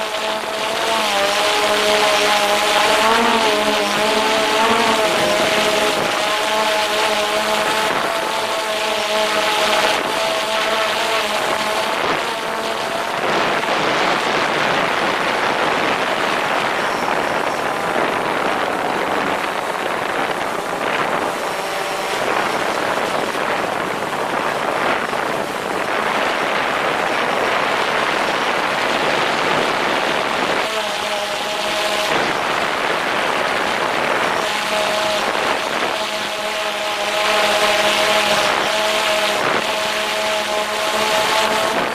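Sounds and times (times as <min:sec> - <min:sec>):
drone propellers humming: 0:00.0 - 0:41.9
wind on microphone: 0:00.0 - 0:41.9.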